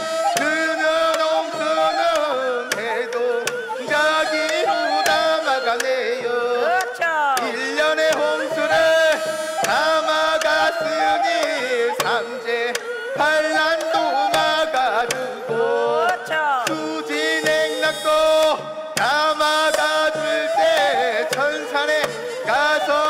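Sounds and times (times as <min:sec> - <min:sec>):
drum strokes: 0:00.0 - 0:23.0
cymbal strokes: 0:09.1 - 0:09.8, 0:17.1 - 0:20.3.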